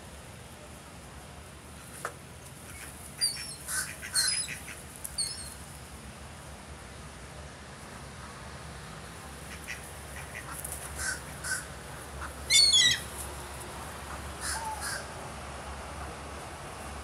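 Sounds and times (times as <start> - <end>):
gulls calling: 2.7 - 5.6, 9.4 - 13.3, 14.0 - 15.2
gull harsh squawk: 9.6 - 13.1, 14.4 - 15.1.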